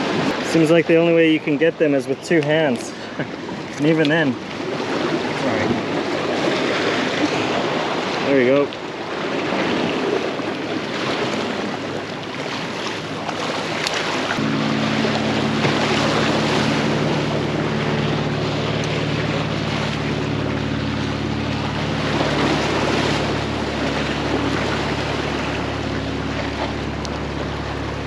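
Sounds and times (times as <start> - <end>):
waves splashing over rocks: 0.0 - 28.0
low engine drone: 13.0 - 28.0.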